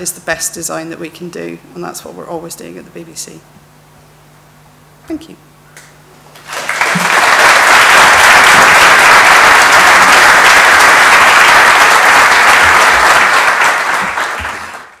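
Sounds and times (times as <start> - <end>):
audience applauding: 6.3 - 15.0.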